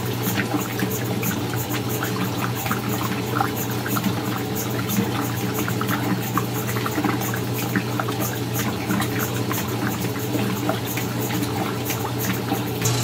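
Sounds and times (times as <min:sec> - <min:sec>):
water sloshing in washing machine: 0:00.0 - 0:13.0.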